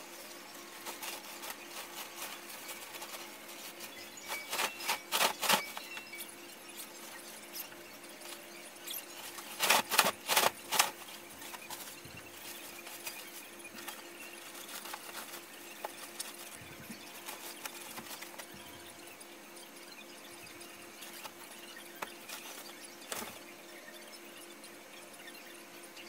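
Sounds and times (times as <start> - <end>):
faint steady hum: 0.0 - 26.0
bedding rustling: 0.6 - 5.8.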